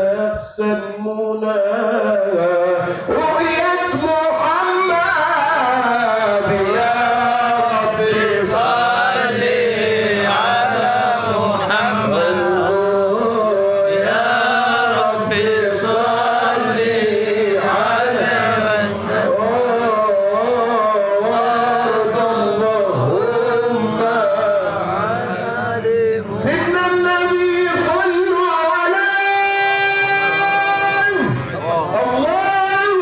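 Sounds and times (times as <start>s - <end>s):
man singing melismatic line: 26.2s - 33.0s.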